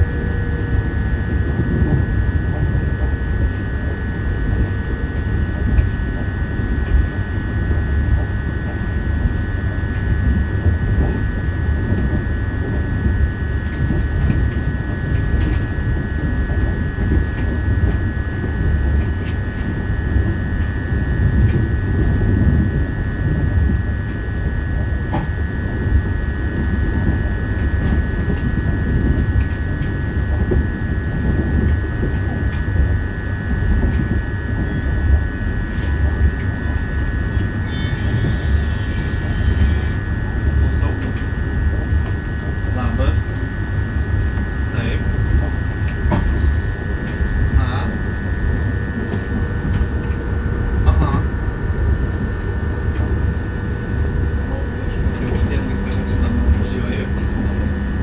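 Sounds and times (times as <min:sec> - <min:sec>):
steady high tone: 0:00.0 - 0:16.3, 0:34.5 - 0:58.0
train wheels rumbling on rails: 0:00.0 - 0:58.0.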